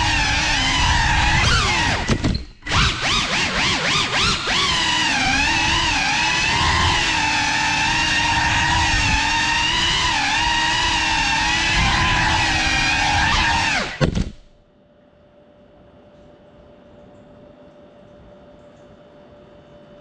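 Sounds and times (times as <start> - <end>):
drone motors whining: 0.0 - 14.4.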